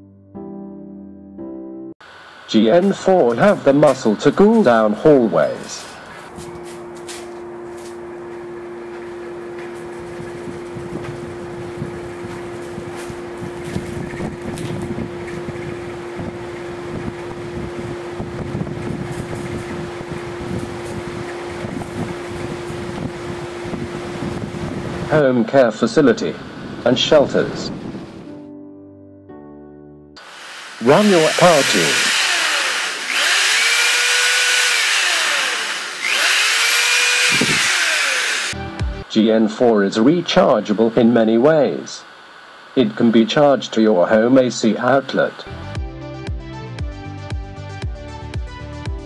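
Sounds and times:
fans and air cooler humming: 2.0 - 28.2, 30.2 - 45.8
air buffeting microphone: 9.0 - 28.3
electric drill whining: 30.2 - 38.6.

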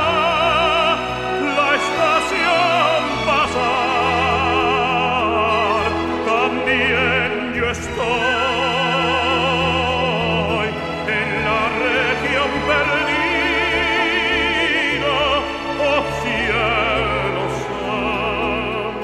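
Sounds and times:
operatic singing voice: 0.0 - 19.0.

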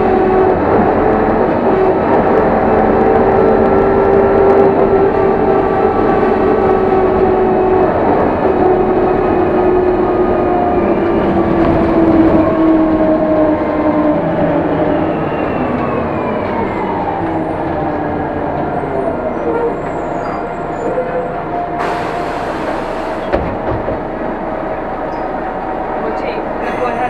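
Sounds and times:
bus engine whine: 0.0 - 27.0
road noise: 0.0 - 27.0.

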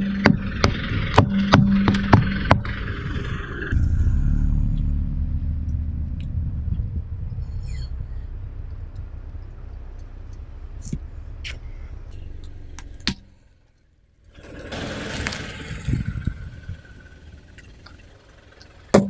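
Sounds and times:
car engine and tyre rumble: 0.0 - 19.0
tyres crackling on grit: 14.2 - 19.0.

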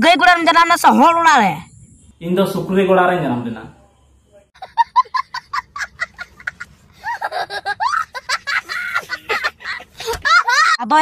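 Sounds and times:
young boy laughing: 4.6 - 11.0.

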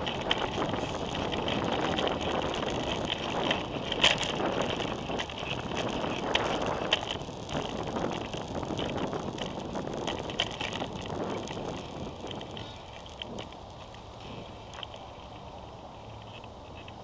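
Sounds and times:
wind on microphone: 0.0 - 15.5
street traffic: 0.0 - 17.0
tyre and road noise: 0.0 - 17.0.

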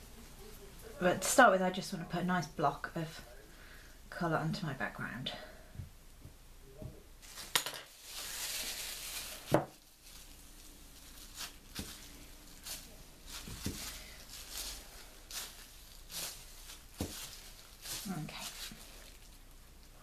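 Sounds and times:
plastic bag crinkling: 7.2 - 20.0.

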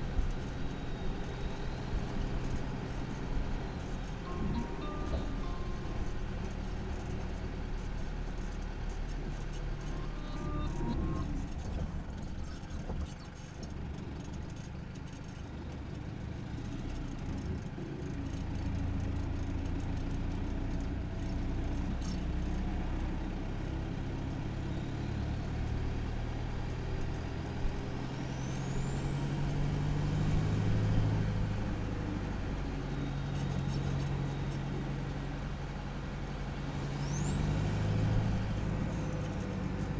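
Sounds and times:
diesel engine and exhaust: 0.0 - 39.9
turbo high whistle: 4.2 - 7.1, 9.8 - 11.5.

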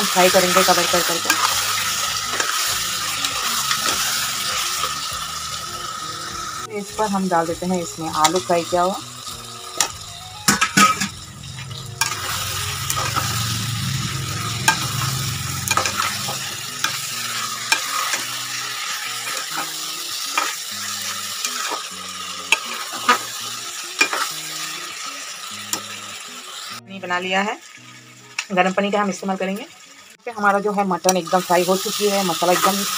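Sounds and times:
masala frying sizzle: 0.0 - 32.9
metal spatula scraping pot: 0.5 - 4.8, 9.8 - 13.4, 14.4 - 20.6.

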